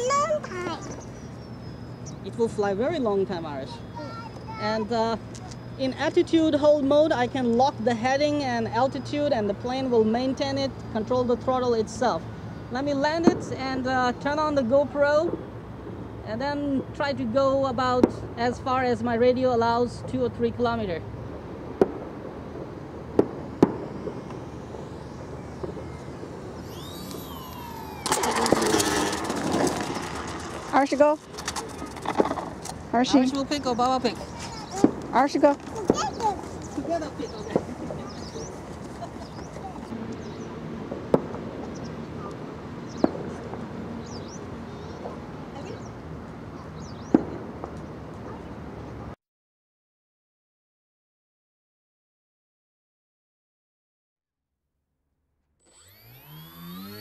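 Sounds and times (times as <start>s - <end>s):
small birds chirping: 0.0s - 6.5s, 23.6s - 40.7s, 41.4s - 49.0s
steady low hum: 0.0s - 49.2s, 55.7s - 57.0s
electric motors whining: 23.4s - 40.9s, 55.6s - 57.0s
model plane scraping pavement: 25.9s - 33.4s
sharp clicks: 26.6s - 30.2s.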